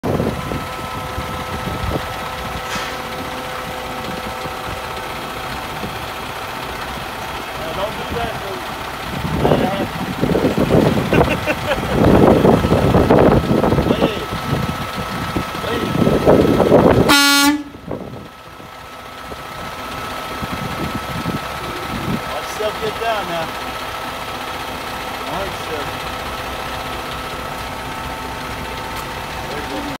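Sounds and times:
diesel engine idling: 0.0 - 30.0
truck air horn blast: 17.1 - 17.8.

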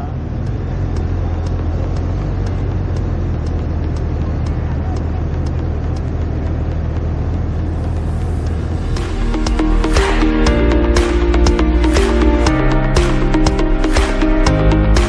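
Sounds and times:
faint regular ticks: 0.0 - 8.8
wind and road noise: 0.0 - 11.1
motorcycle engine drone: 0.0 - 15.0.

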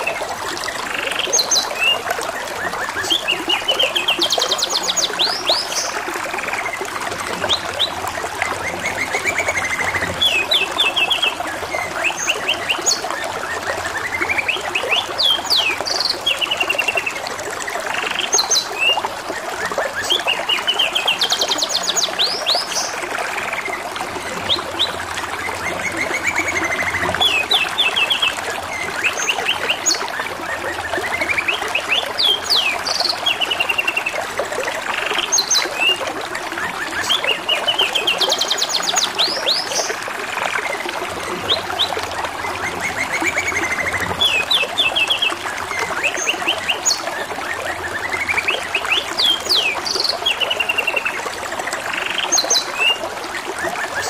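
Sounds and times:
trickle of running water: 0.0 - 54.0.

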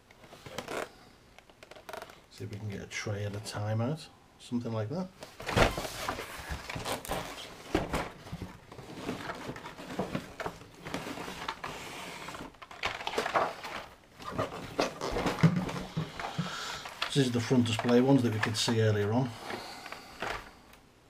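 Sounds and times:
cardboard scraping and rustling: 5.3 - 20.5.

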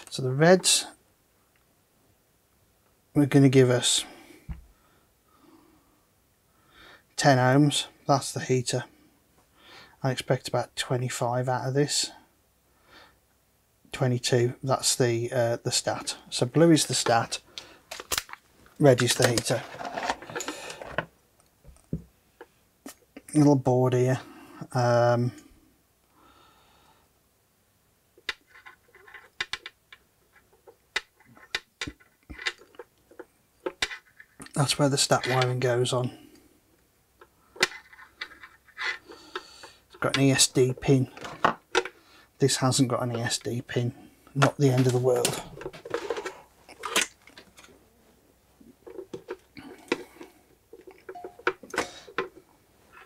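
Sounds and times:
fingers clicking and rustling wires: 16.8 - 22.0, 28.2 - 35.8, 44.4 - 47.8, 48.7 - 53.0.

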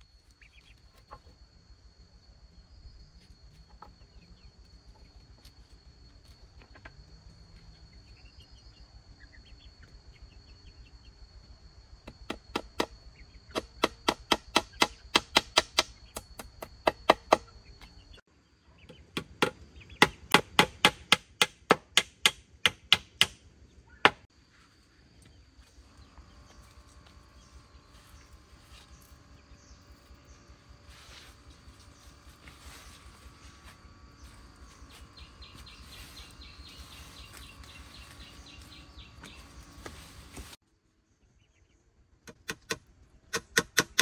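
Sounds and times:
high-pitched insect drone: 0.0 - 18.2, 24.2 - 40.6
hand tool striking wood: 12.1 - 17.5, 19.1 - 23.4, 42.3 - 44.0.

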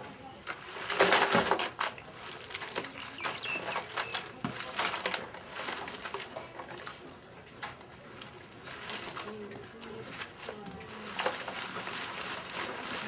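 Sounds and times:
crab shells clicking and scraping: 0.6 - 7.0.

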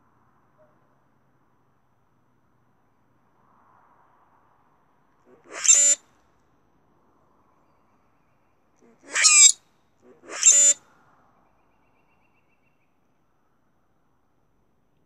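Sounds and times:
grackles singing creaky songs: 5.3 - 6.0, 9.0 - 10.8.

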